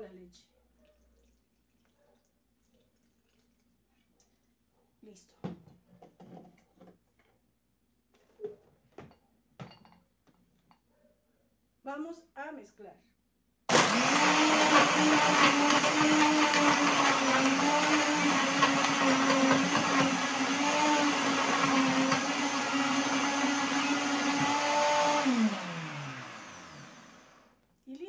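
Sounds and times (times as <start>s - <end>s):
blender crushing ice: 13.7s - 27.5s.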